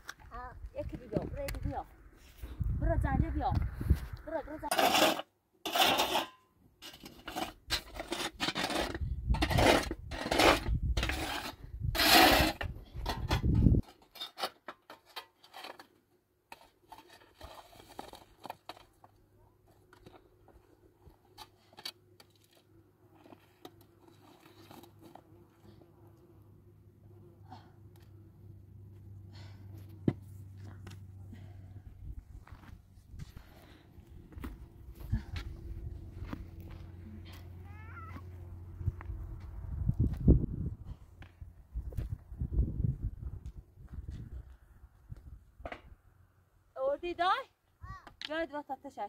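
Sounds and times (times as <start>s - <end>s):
hand scraping stone: 4.6s - 20.5s.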